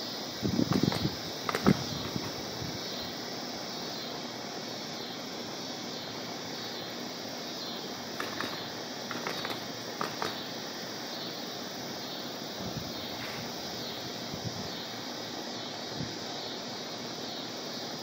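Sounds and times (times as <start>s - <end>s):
wind through trees: 0.0s - 18.0s
faint clicks: 8.2s - 10.5s.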